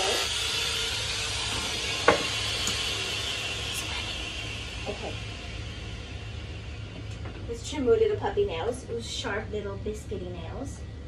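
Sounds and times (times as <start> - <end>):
electric pet trimmer buzzing: 0.0 - 4.2
low steady hum: 0.0 - 11.0.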